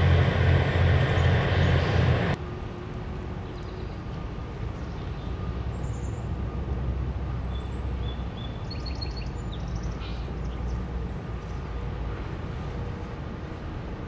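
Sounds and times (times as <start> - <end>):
low engine rumble of tug: 0.0 - 3.2.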